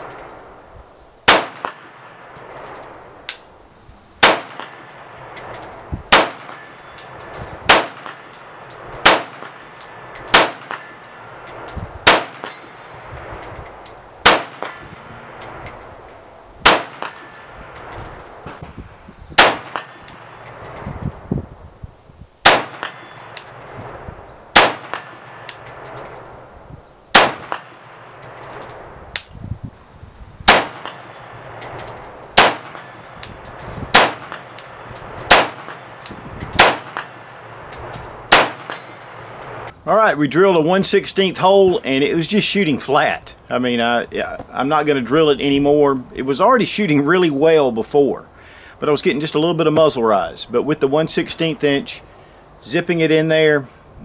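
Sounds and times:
rifle shots: 1.3 - 2.8, 4.2 - 12.9, 14.2 - 14.8, 16.6 - 18.6, 19.4 - 20.4, 22.4 - 23.8, 24.5 - 26.2, 27.1 - 28.7, 30.5 - 39.6.

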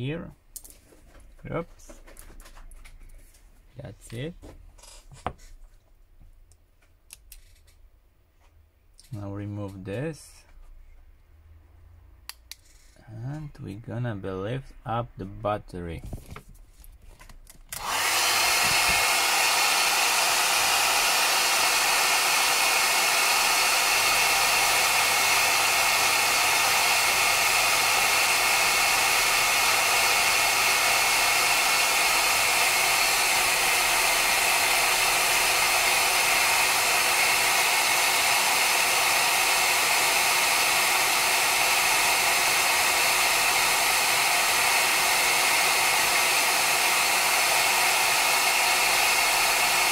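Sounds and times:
hair dryer blowing: 17.7 - 49.9.

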